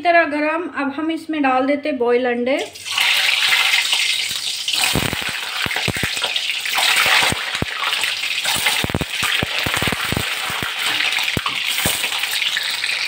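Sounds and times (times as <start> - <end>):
hot oil sizzling: 2.6 - 13.0
spattering oil pops: 4.7 - 12.8.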